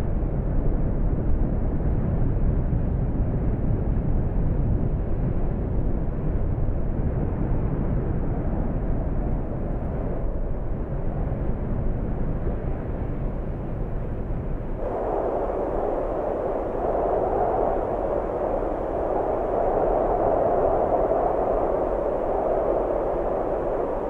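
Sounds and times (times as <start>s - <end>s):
volcano crater rumbling: 2.1s - 24.0s.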